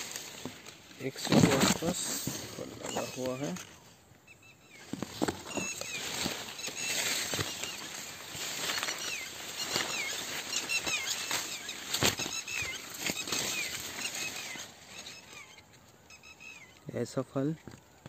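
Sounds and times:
dry leaves rustling: 0:00.0 - 0:04.0, 0:04.8 - 0:16.2
small birds chirping: 0:00.0 - 0:18.0.

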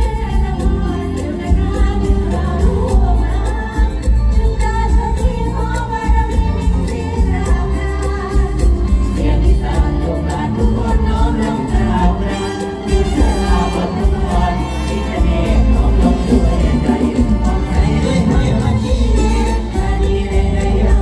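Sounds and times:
person singing: 0:00.0 - 0:21.0
stage-show music over loudspeakers: 0:00.0 - 0:21.0.

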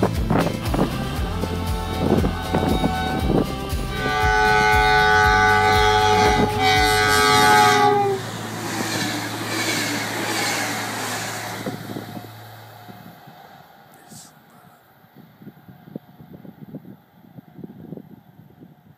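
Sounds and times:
train running noise: 0:00.0 - 0:18.9
train horn blast: 0:02.0 - 0:13.1.

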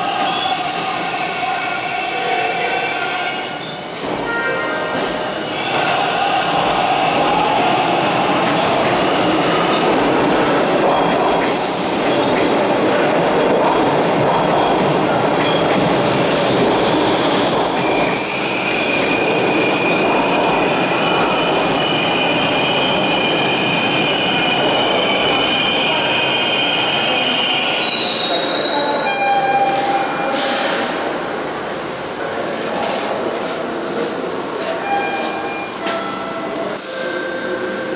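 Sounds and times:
subway train wheels rumbling: 0:00.0 - 0:37.9
high-pitched metallic squeal: 0:17.0 - 0:30.7.

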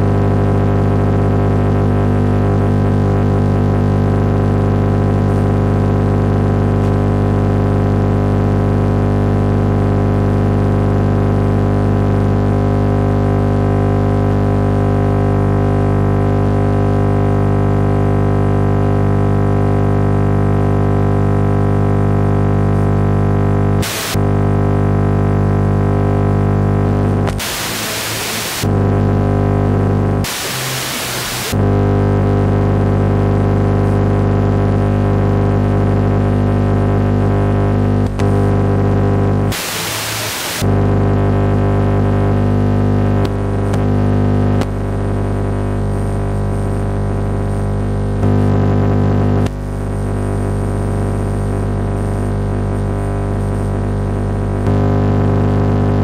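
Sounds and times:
radio interference buzz: 0:00.0 - 0:18.0, 0:18.6 - 0:56.0
radio hiss: 0:23.8 - 0:24.3, 0:26.9 - 0:32.9, 0:38.0 - 0:44.9, 0:48.2 - 0:53.8.

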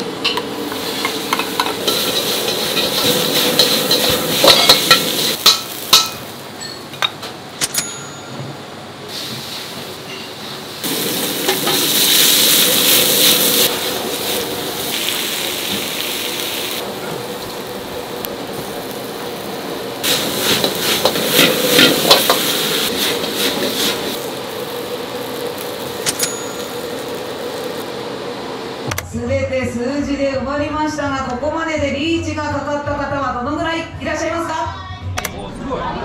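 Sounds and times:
food sizzling in a pan: 0:00.6 - 0:06.7, 0:09.1 - 0:28.8
metal utensils clattering on pan: 0:01.0 - 0:08.2, 0:20.4 - 0:24.0
steady hum: 0:10.8 - 0:29.4.

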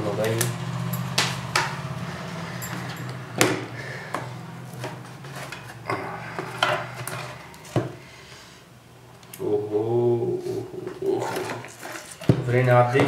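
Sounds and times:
wood knocking and scraping: 0:02.8 - 0:08.0, 0:10.8 - 0:13.0.

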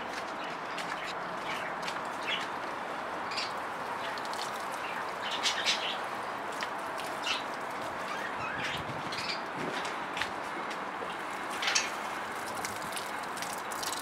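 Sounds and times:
water pouring from watering can: 0:03.8 - 0:05.7, 0:11.6 - 0:14.0.

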